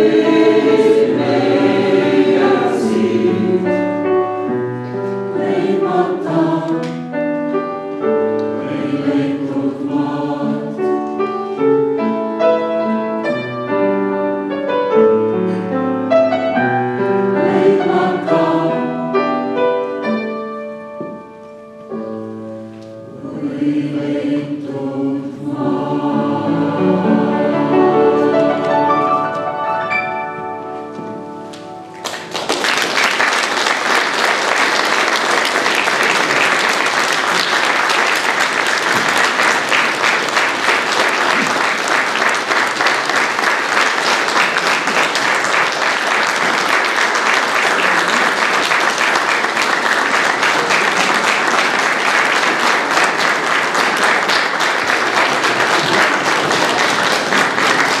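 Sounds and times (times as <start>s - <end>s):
choir and piano: 0.0s - 58.0s
audience applause: 31.9s - 58.0s.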